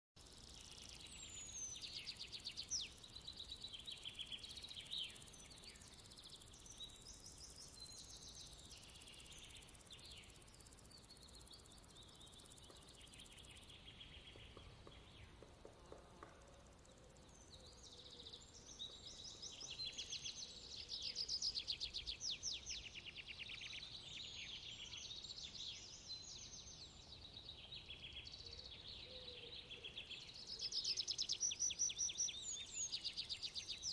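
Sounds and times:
low steady hiss: 0:00.2 - 0:33.9.

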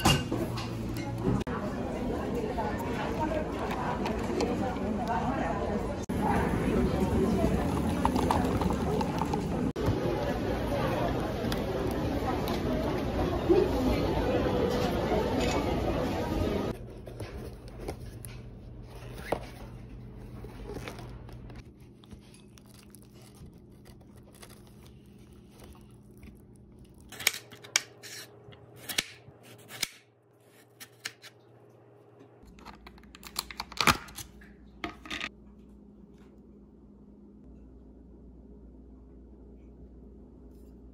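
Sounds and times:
paper and plastic crinkling: 0:16.9 - 0:27.7.

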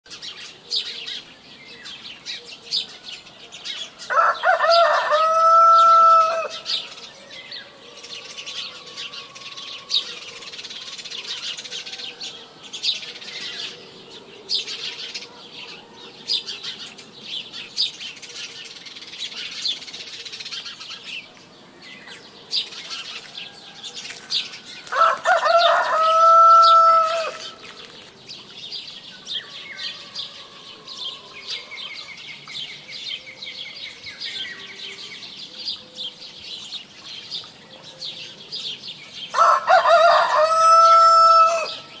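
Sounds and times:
songbirds chirping: 0:00.0 - 0:42.0
rooster crowing: 0:04.1 - 0:06.7, 0:24.8 - 0:27.6, 0:29.4 - 0:32.0, 0:39.3 - 0:41.9.

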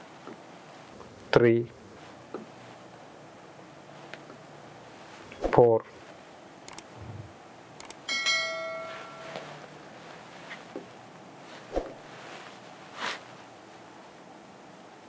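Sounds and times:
notification bell ding: 0:08.1 - 0:09.7.

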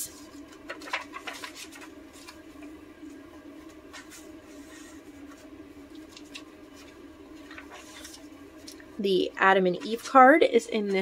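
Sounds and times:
faint room hum: 0:00.0 - 0:11.0
paper pages rustling: 0:00.2 - 0:08.8.

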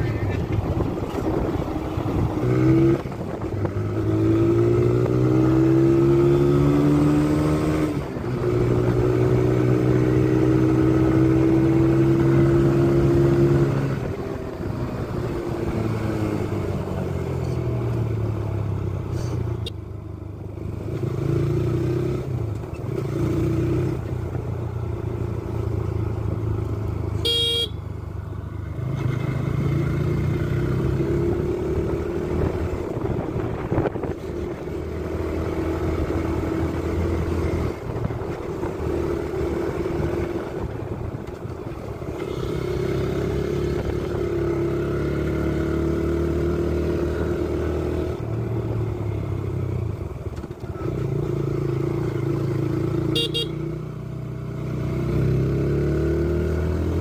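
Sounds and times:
motorcycle engine accelerating: 0:00.0 - 0:19.0, 0:20.4 - 0:57.0
horn beep: 0:27.2 - 0:27.8, 0:53.1 - 0:53.6.

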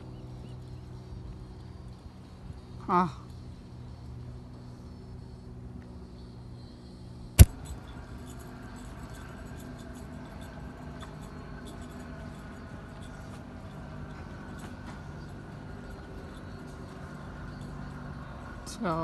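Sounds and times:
steady low hum: 0:00.0 - 0:19.0
sharp click: 0:07.4 - 0:07.6.

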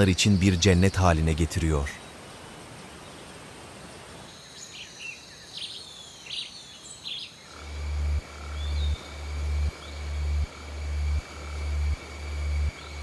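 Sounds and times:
birds chirping: 0:00.0 - 0:13.0
high insect drone: 0:03.9 - 0:13.0
deep throbbing pulse: 0:07.6 - 0:13.0.

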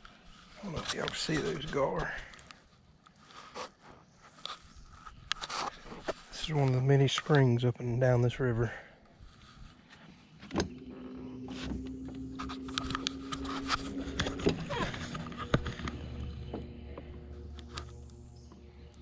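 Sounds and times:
electric trolling motor humming: 0:10.5 - 0:19.0.

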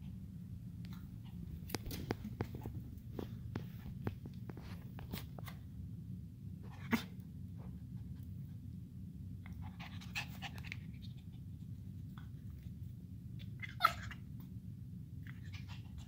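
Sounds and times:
puppy scuffling on carpet: 0:01.3 - 0:05.6.

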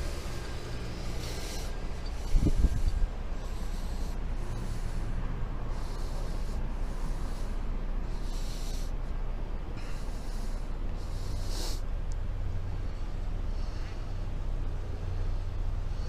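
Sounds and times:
low handling rumble: 0:00.0 - 0:05.7.

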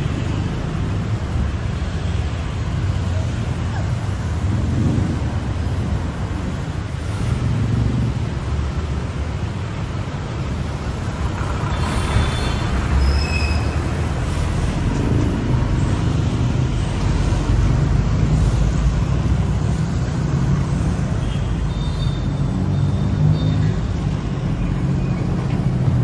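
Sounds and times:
traffic rumble: 0:00.0 - 0:26.0
short high squeals: 0:11.7 - 0:14.0.

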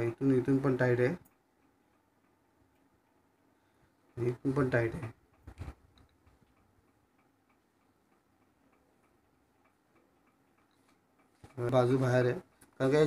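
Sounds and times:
faint regular ticking: 0:00.0 - 0:13.0.

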